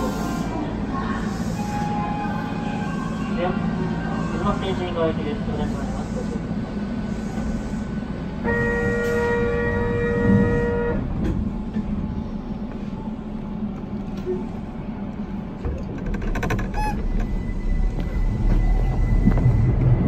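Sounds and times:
train running rumble: 0.0 - 20.0
train horn two-note chord: 8.4 - 11.0.

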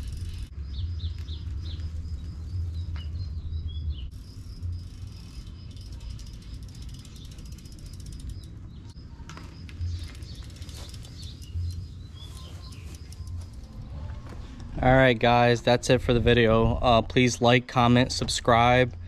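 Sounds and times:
bicycle freewheel ticking: 0.0 - 2.6, 4.1 - 14.1.

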